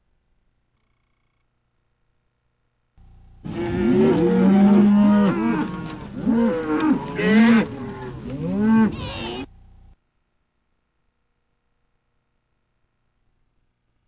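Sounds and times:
cows mooing: 3.4 - 9.5.

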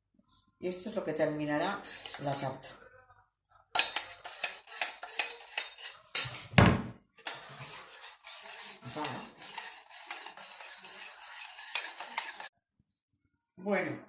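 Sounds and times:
metal spoon scraping saucepan: 0.7 - 2.9, 3.7 - 6.6, 7.2 - 12.5.

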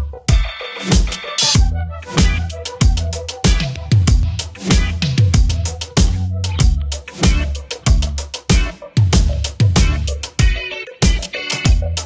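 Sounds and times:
kick drum: 0.3 - 11.9
held bass notes: 1.6 - 10.6, 11.7 - 12.0
hi-hat ticks: 2.6 - 12.0.

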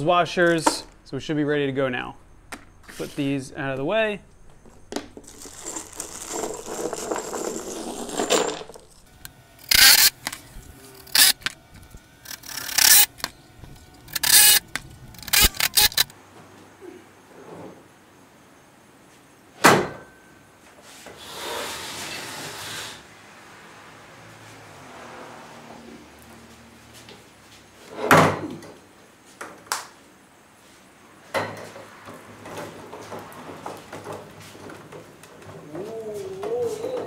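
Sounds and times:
washers clinking: 4.2 - 10.4
plastic bag rustling: 4.4 - 9.2
wood scraping on concrete: 4.5 - 10.4
impact driver bursts: 9.6 - 10.4, 11.0 - 11.6, 12.3 - 13.3, 14.1 - 16.1.

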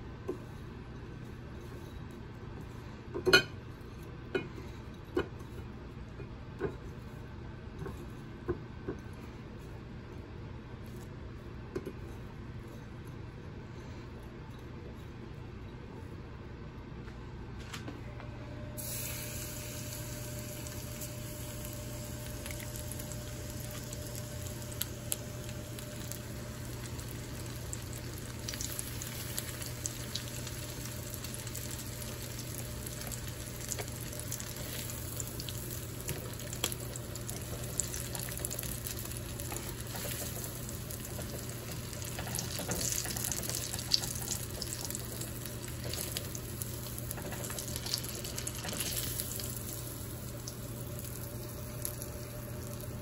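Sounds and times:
food deep-frying in oil: 18.8 - 53.0.

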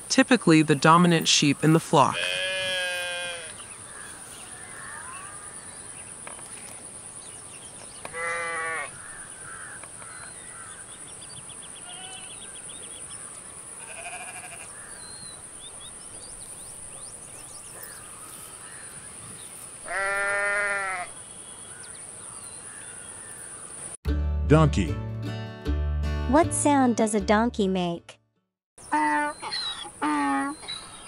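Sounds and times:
sheep bleating: 2.1 - 3.6, 8.1 - 9.0, 11.8 - 12.4, 13.8 - 14.7, 19.8 - 21.1.

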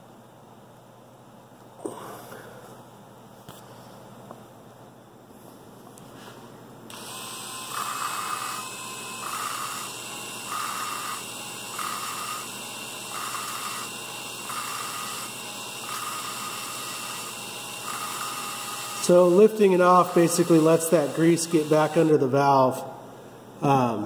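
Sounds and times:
cordless drill grinding valve: 6.9 - 22.2.

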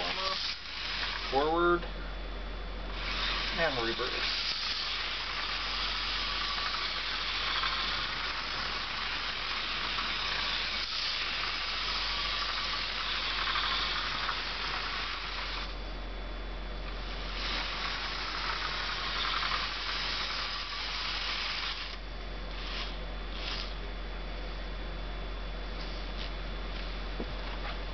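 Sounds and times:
model train whirring hiss: 0.0 - 1.8, 2.9 - 15.8, 17.0 - 23.8.

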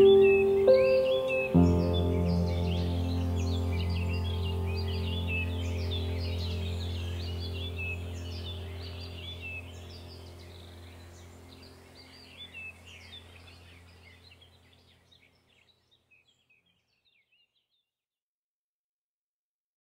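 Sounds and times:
low steady drone: 0.0 - 14.8
birdsong chirping: 0.0 - 17.8.

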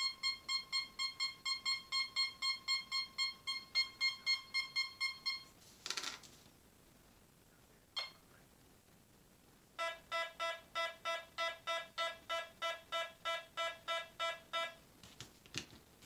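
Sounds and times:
metal detector beeping: 0.0 - 5.5, 9.8 - 14.8.

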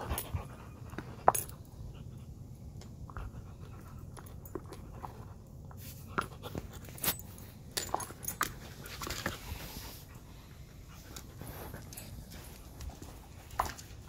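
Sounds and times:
dog chewing ball on tile: 0.0 - 9.8.

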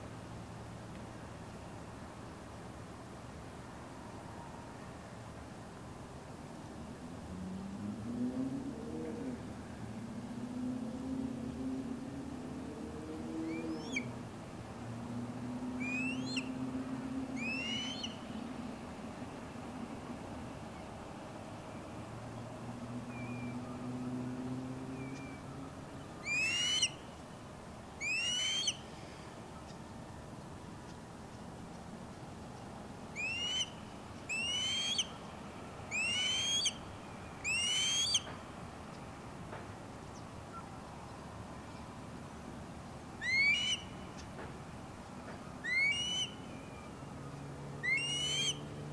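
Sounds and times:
osprey whistled chirps: 15.8 - 16.5, 17.4 - 18.2, 26.2 - 27.0, 28.0 - 28.8, 33.2 - 35.2, 35.9 - 38.3, 43.2 - 44.0, 45.6 - 46.9, 47.8 - 48.6.

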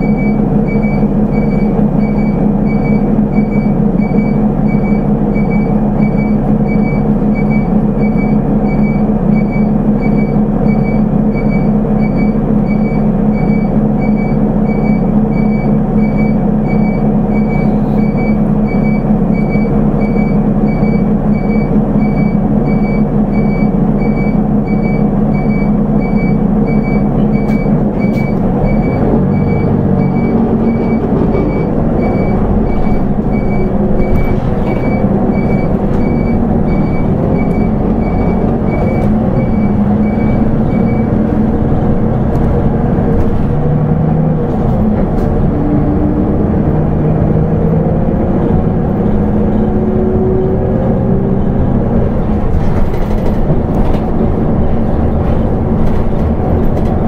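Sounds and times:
electronic beep: 0.0 - 41.2
bus diesel engine idling: 0.0 - 57.0.

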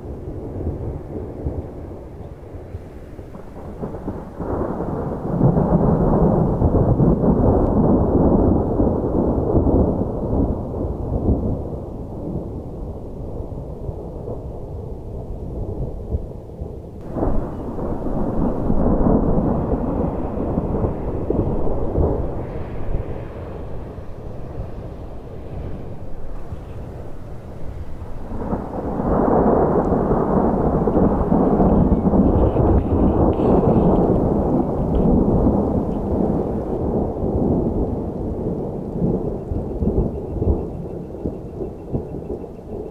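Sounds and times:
thunder crack: 0.0 - 42.9
thunder rumbling: 0.0 - 42.9.

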